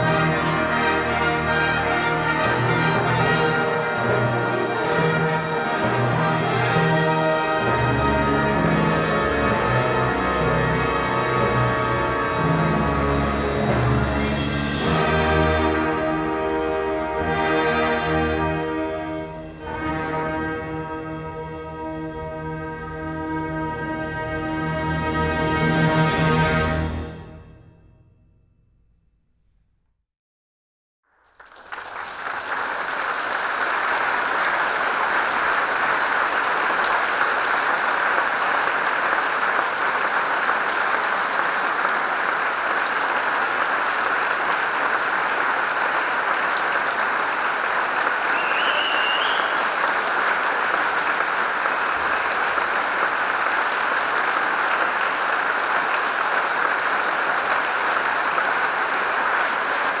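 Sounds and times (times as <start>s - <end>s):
audience applauding: 0.0s - 17.4s, 31.2s - 60.0s.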